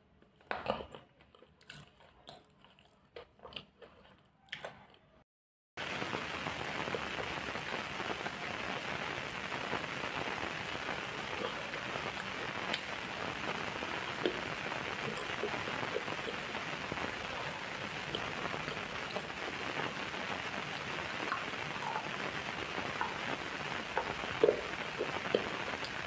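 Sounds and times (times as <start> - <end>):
steady rain-like hiss: 5.8 - 26.0.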